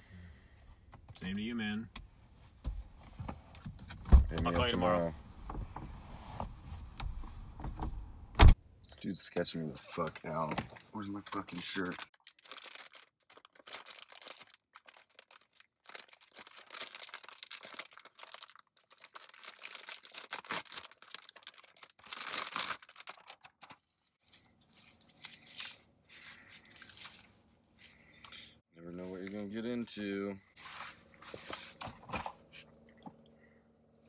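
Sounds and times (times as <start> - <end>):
clothes rustling and crinkling: 30.5 - 33.2.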